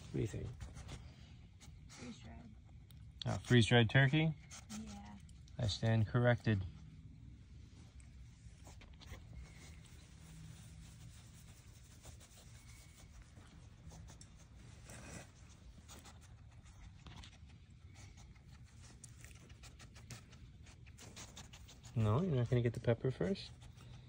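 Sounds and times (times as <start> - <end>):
hand stroking fur: 8.4 - 16.7.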